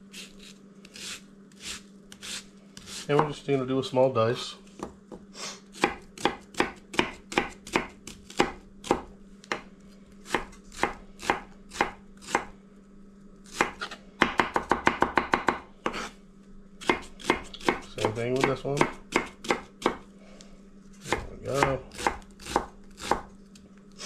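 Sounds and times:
knife chopping onion on board: 0.9 - 3.4, 5.8 - 12.5, 13.5 - 16.1, 16.8 - 20.0, 21.0 - 23.3.

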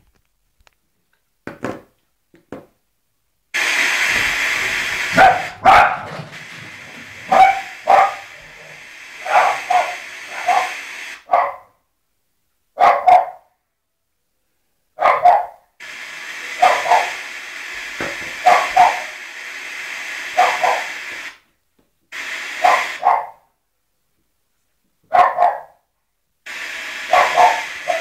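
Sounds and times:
loud steady hiss: 3.5 - 11.3, 15.8 - 21.5, 22.1 - 23.2, 26.4 - 28.0
dog barking: 5.0 - 11.8, 12.8 - 13.6, 15.0 - 15.7, 16.6 - 17.2, 18.4 - 19.2, 20.4 - 21.0, 22.6 - 23.5, 25.1 - 25.8, 27.0 - 28.0.

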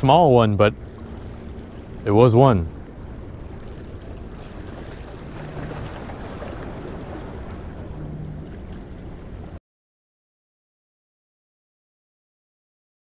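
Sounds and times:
sea washing: 0.0 - 9.6.

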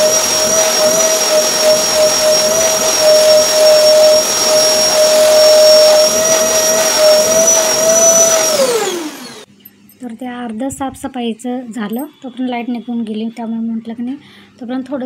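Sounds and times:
vacuum cleaner whining: 0.0 - 9.5.

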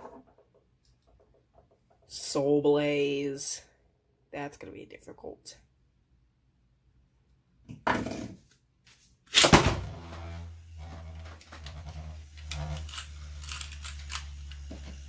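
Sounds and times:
spinning top whirring: 11.4 - 15.0
spinning top ripping and clattering: 12.3 - 15.0.

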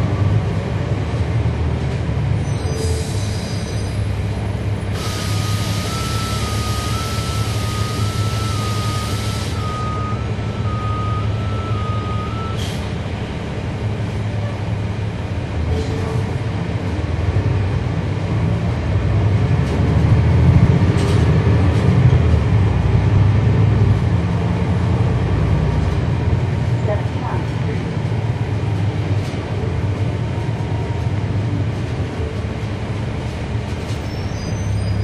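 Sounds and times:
bus diesel engine running: 0.0 - 35.0
two-tone warning beep: 5.8 - 12.7.

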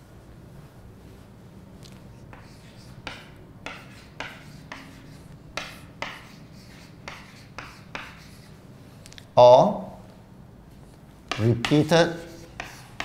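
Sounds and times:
chalk writing on a chalkboard: 2.2 - 8.6, 11.3 - 13.0.

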